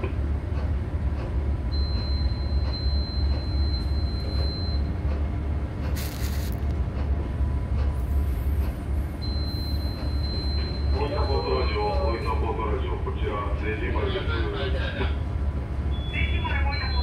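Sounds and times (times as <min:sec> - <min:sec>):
ship engine rumble: 0:00.0 - 0:17.0
brief hiss: 0:06.0 - 0:06.6.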